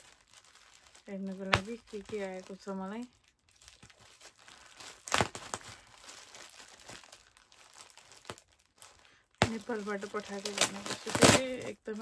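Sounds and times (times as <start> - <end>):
plastic packaging crinkling: 0.0 - 12.0
scissors cutting plastic: 9.4 - 12.0.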